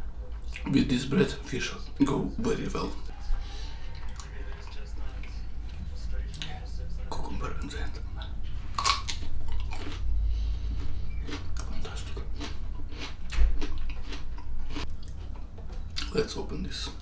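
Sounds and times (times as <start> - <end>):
man chewing crunchy food: 8.6 - 16.2.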